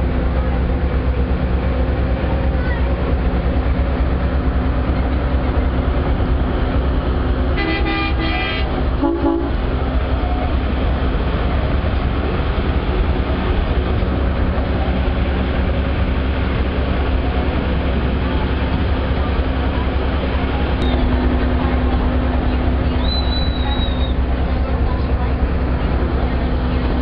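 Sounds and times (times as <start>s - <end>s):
diesel locomotive running: 0.0s - 27.0s
locomotive horn: 7.5s - 9.8s.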